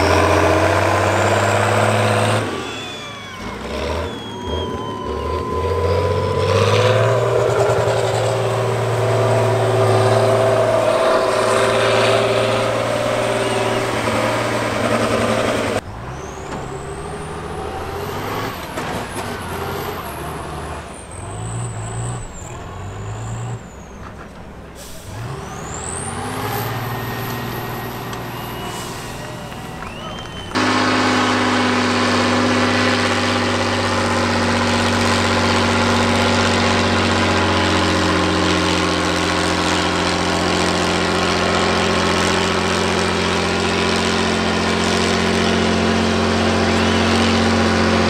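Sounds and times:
diesel truck engines under load: 0.0 - 48.0
high whistle rising: 2.5 - 18.6, 25.4 - 31.4.

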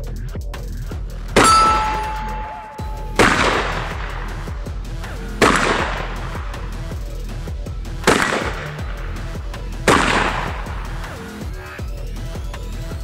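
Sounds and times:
electronic music: 1.4 - 5.2
shotgun shots: 1.4 - 7.0, 8.0 - 11.4.

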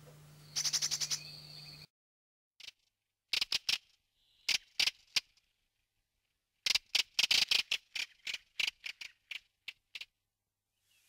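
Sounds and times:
bird chattering call notes: 0.5 - 1.3.

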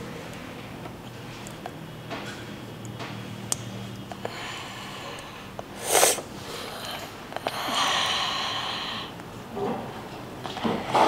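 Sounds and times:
hiss: 5.8 - 6.3.

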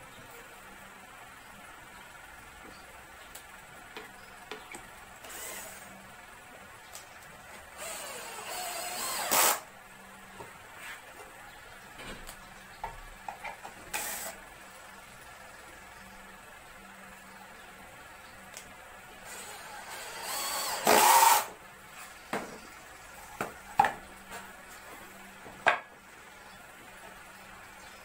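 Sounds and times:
cordless drill driving screws: 5.2 - 5.9, 7.8 - 9.7, 13.9 - 14.4, 19.3 - 21.5.

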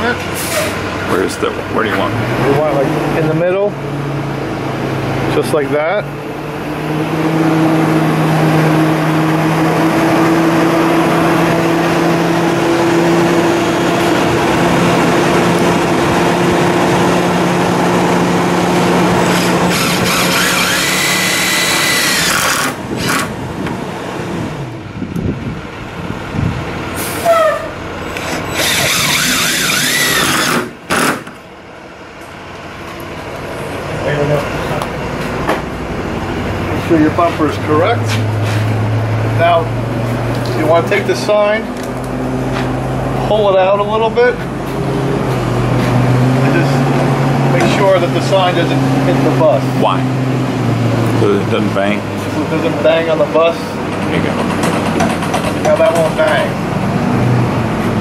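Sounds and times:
cordless drill running: 19.2 - 23.3, 28.2 - 31.3.

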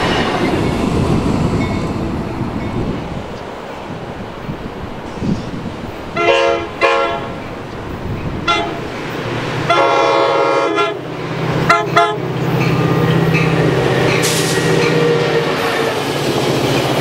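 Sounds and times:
locomotive air horn blasts: 6.2 - 7.4, 8.4 - 8.8, 9.6 - 12.2.

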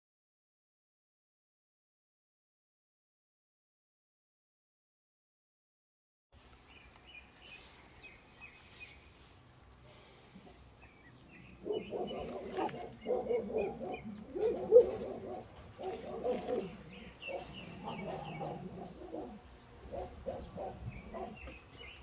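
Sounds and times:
faint high bird chirping: 6.6 - 9.1, 10.5 - 15.1, 15.8 - 22.0
loud low animal calls: 9.9 - 22.0.

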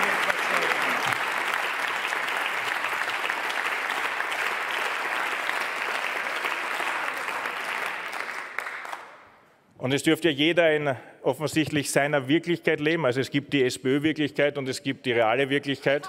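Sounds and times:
crowd applause: 0.0 - 9.2.

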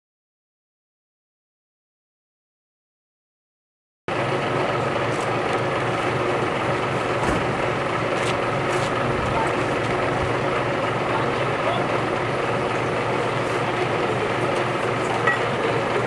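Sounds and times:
vehicle engine running: 4.1 - 16.0.

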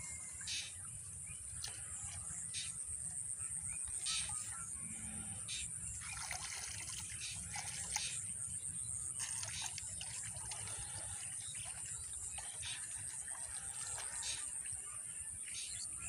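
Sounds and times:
water splashing and dripping: 1.6 - 2.2, 6.0 - 14.8.

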